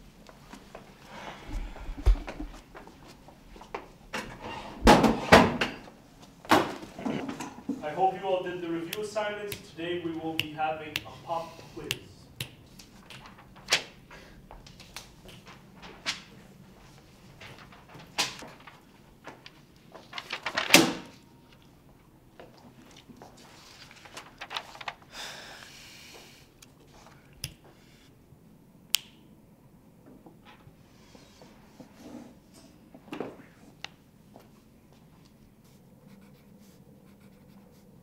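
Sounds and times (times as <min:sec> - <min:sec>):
paper rustling: 0:12.6 - 0:21.7, 0:22.5 - 0:25.1.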